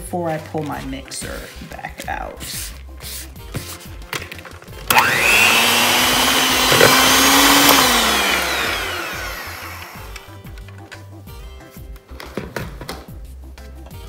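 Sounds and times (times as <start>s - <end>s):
electric hand mixer motor whining: 4.8s - 10.3s.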